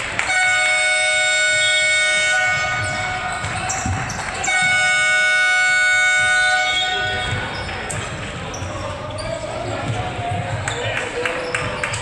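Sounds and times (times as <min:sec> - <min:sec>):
scoreboard horn blasts: 0:00.2 - 0:03.6, 0:04.4 - 0:07.5.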